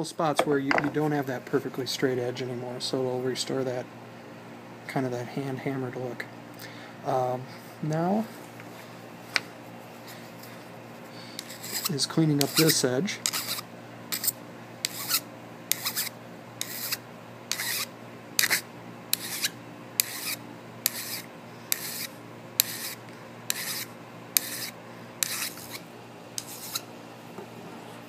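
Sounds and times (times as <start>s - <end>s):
hand file rasping on metal: 11.4s - 18.6s, 19.2s - 25.8s, 26.4s - 26.8s.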